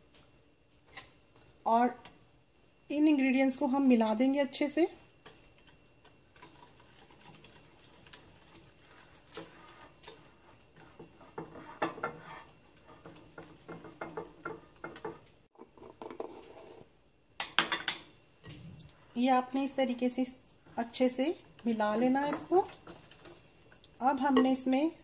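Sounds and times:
utensil stirring batter: 5.1s - 16.9s, 18.9s - 24.6s.

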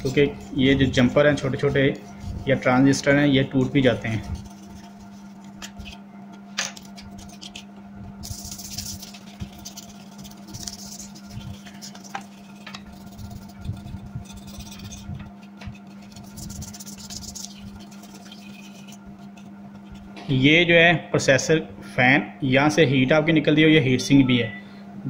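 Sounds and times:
toothbrush scrubbing circuit board: 0.0s - 6.0s, 6.8s - 20.1s
steady low hum: 0.0s - 25.0s.

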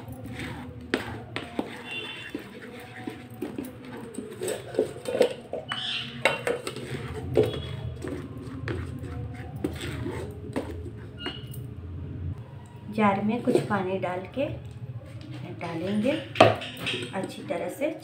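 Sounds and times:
spatula scraping metal strainer: 0.0s - 11.5s.

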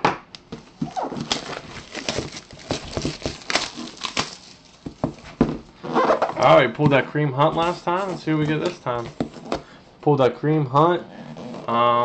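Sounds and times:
cardboard box being opened: 0.6s - 5.4s.

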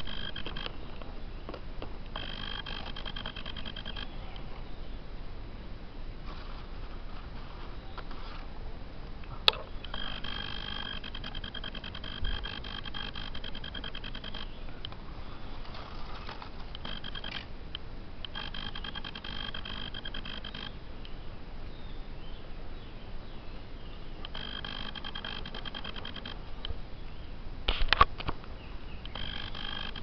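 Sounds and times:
animal buzzing trill: 0.0s - 0.8s, 2.2s - 4.4s, 9.5s - 14.6s, 15.8s - 17.4s, 18.2s - 20.8s, 24.2s - 26.4s, 29.1s - 30.0s.

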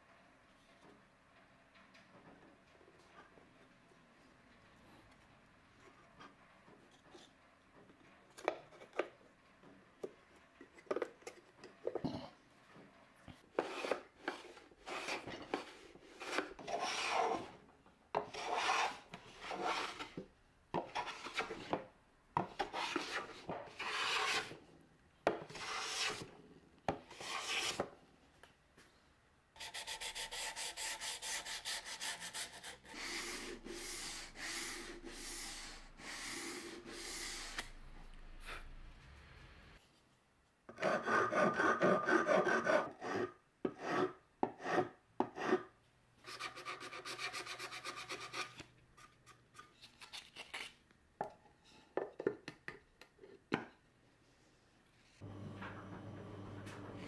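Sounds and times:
hand plane shaving wood: 22.7s - 24.5s.

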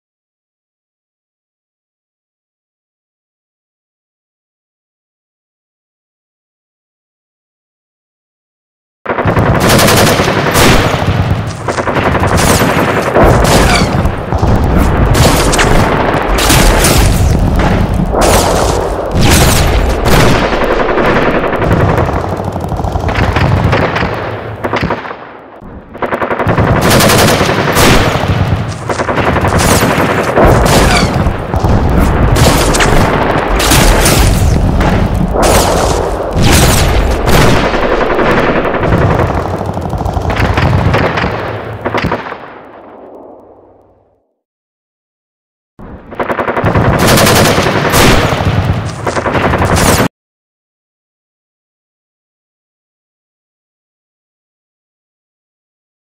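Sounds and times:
machine-gun fire: 9.1s - 43.0s, 46.0s - 50.1s
single gunshots: 9.4s - 21.0s, 26.8s - 38.4s, 46.6s - 50.1s.

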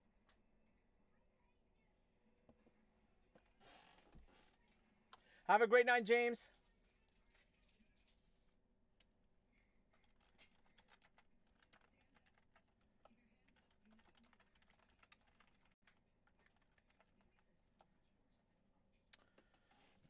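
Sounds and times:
typing on computer keyboard: 10.0s - 12.8s, 13.4s - 17.4s.

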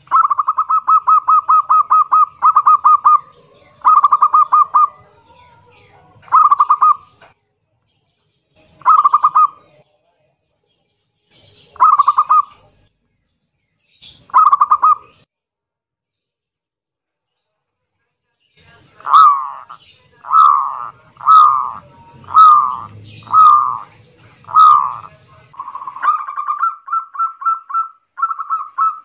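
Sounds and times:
dove cooing: 0.0s - 7.1s, 8.8s - 9.7s, 11.8s - 12.7s, 14.3s - 15.2s, 18.9s - 29.0s.

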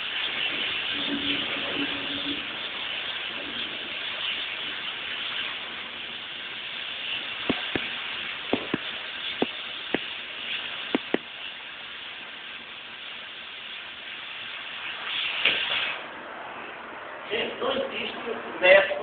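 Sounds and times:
cutting torch hissing: 0.0s - 18.5s
sharp pops: 7.3s - 11.4s, 15.0s - 16.0s.

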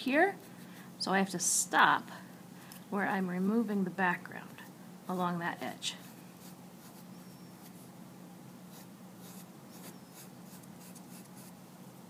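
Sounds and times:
steady low hum: 0.0s - 12.0s
pencil scratching styrofoam: 6.0s - 7.8s, 8.7s - 11.6s.

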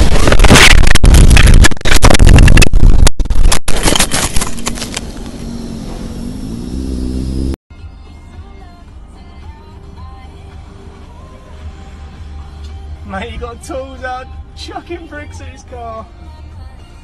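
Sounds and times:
crash scraping and tumbling: 0.0s - 5.1s
engine running steadily: 4.7s - 7.6s.

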